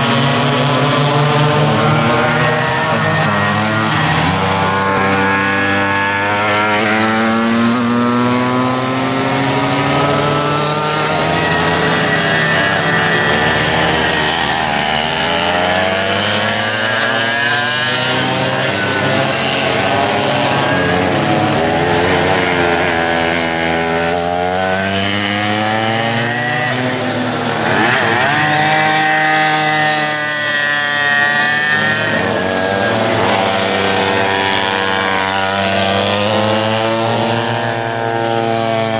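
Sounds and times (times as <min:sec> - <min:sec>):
kart engines buzzing at high revs: 0:00.0 - 0:38.9.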